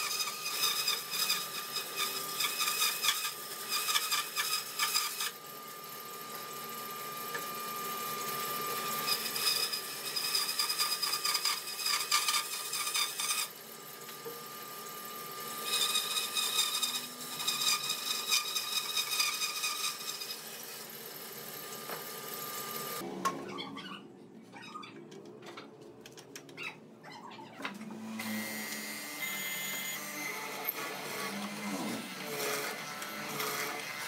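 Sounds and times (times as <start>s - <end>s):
power tool whining: 27.9s - 34.0s.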